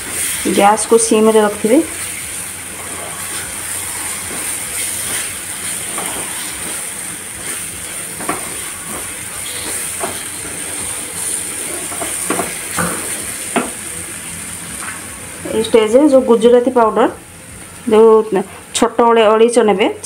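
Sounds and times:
food sizzling in pan: 0.0s - 19.8s
spatula scraping pan: 2.0s - 13.7s.

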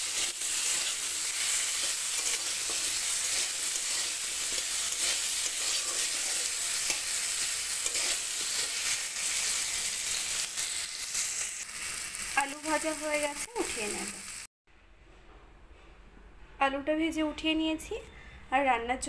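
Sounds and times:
metal spatula scraping pan: 0.0s - 9.6s
potatoes sizzling in oil: 0.0s - 14.5s.

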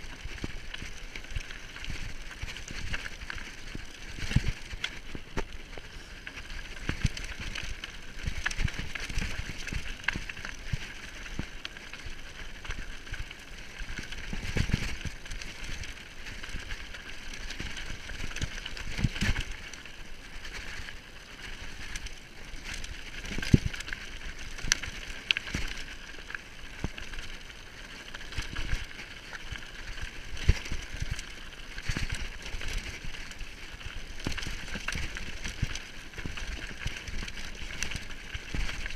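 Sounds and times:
wheels knocking on stones: 0.0s - 38.9s
bike tyres hissing on dirt: 0.2s - 14.3s.

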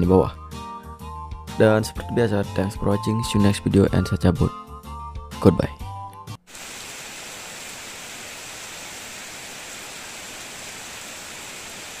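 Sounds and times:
steady rain on wet ground: 6.5s - 12.0s.

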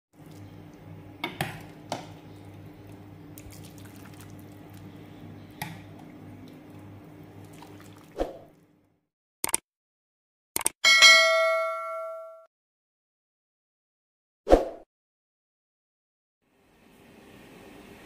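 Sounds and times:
liquid pouring and dripping: 2.8s - 4.9s, 6.0s - 8.2s.

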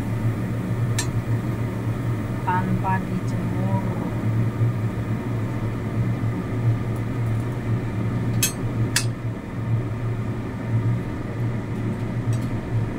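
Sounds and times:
low mechanical hum: 0.0s - 12.9s.

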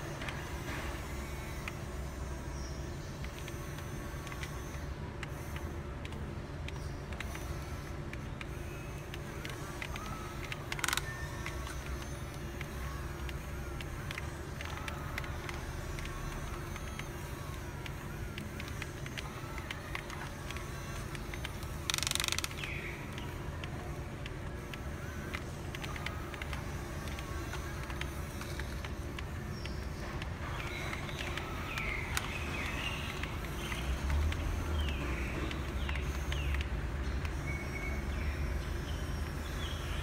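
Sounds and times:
model excavator motor hum: 0.0s - 40.0s.

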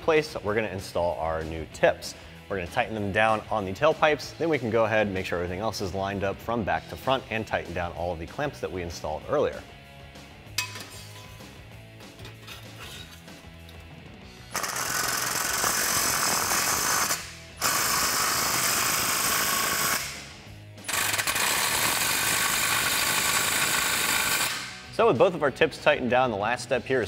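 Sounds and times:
impact wrench hammering: 10.6s - 11.4s, 14.5s - 24.9s.

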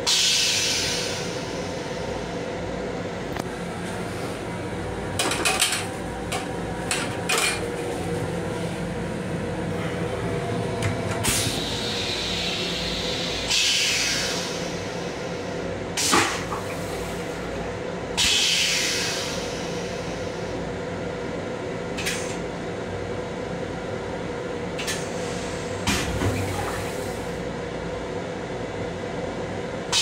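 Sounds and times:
railcar hum: 0.0s - 30.0s
toilet flush water hissing: 11.2s - 15.4s.

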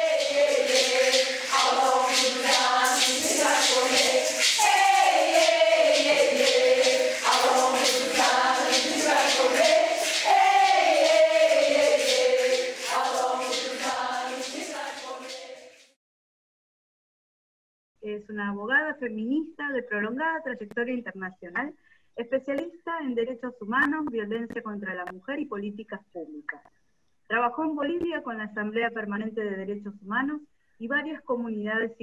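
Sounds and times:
group of voices singing: 0.0s - 16.0s
rhythmic percussion: 0.0s - 16.0s.

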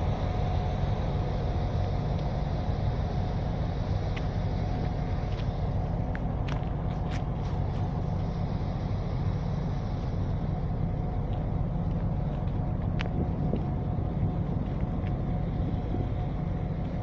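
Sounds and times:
diesel locomotive idling: 0.0s - 17.0s.

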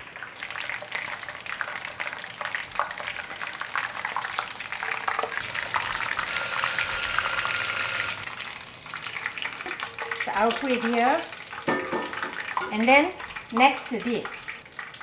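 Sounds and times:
chicken deep-frying in oil: 0.0s - 7.1s, 8.2s - 15.0s
thin steady tone: 6.3s - 8.3s.

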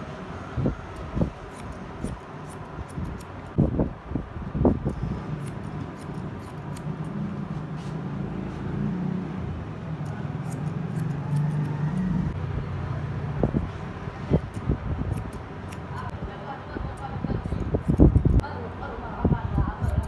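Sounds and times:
scissors snipping hair: 0.9s - 3.6s, 4.8s - 7.2s, 10.0s - 12.1s, 14.4s - 16.2s, 16.9s - 18.4s, 19.7s - 20.0s.

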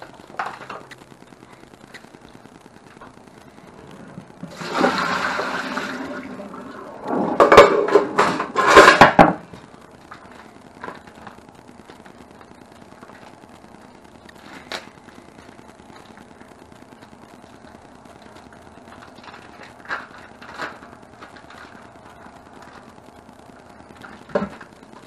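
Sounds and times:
water pouring into sink: 4.5s - 6.8s
plastic bag rustling: 14.3s - 25.0s.

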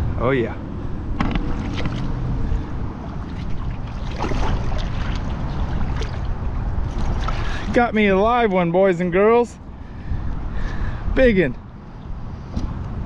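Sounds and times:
wind on microphone: 0.0s - 8.4s
iguana splashing in water: 3.0s - 7.7s.

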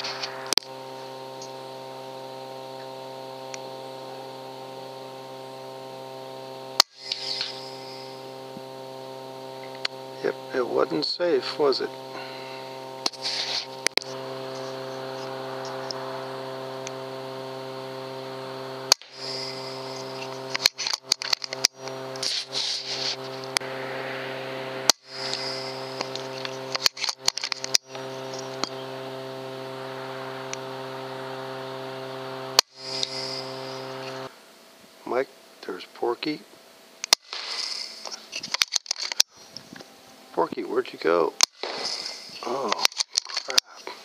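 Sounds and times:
electrical hum: 0.0s - 44.0s
small clicks: 18.9s - 22.5s
air rifle firing cracks: 37.1s - 38.0s, 41.5s - 42.3s.

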